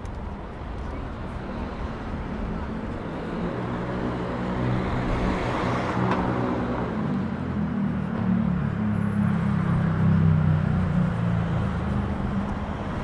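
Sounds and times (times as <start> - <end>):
passing road noise: 0.0 - 13.0
vehicle engine humming: 0.0 - 13.0.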